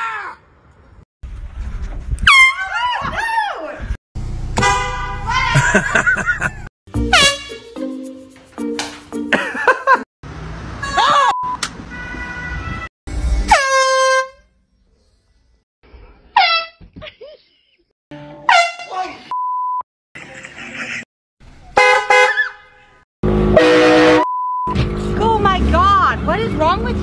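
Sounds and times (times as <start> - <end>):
air horn blasts: 4.6 - 5.5, 7.0 - 7.8, 11.9 - 14.5, 18.4 - 19.0, 23.2 - 24.3.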